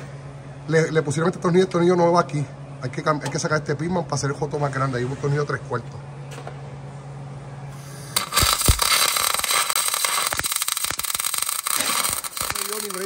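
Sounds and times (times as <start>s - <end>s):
welding arc crackling: 7.8s - 13.0s.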